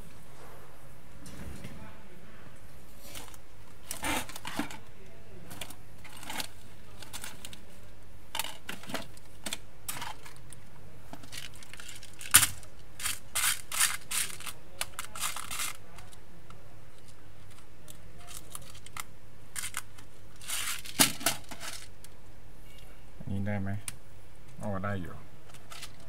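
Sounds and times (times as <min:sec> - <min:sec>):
plastic parts clicking: 0:11.2 - 0:16.2, 0:17.0 - 0:22.2, 0:25.5 - 0:26.0.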